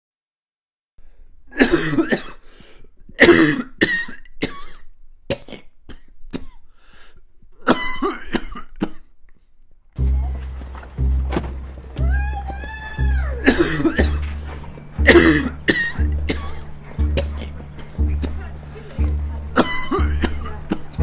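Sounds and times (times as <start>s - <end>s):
person coughing: 1.5s - 2.4s, 3.2s - 6.6s, 7.6s - 9.1s, 13.4s - 14.3s, 15.0s - 18.5s, 19.6s - 21.0s.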